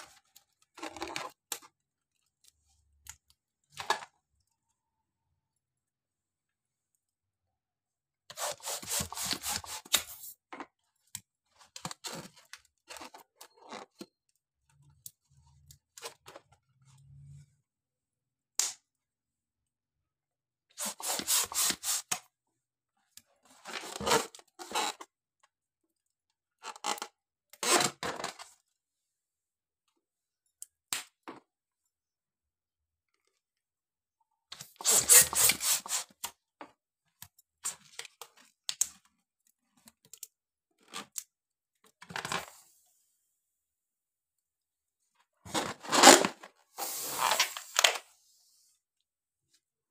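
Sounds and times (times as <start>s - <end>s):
rustling rubber balloons: 45.5s - 47.7s.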